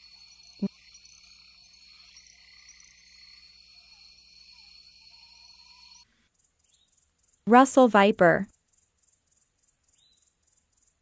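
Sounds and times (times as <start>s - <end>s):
faint rising chirps: 0.0s - 7.4s
insects chirring: 0.0s - 11.0s.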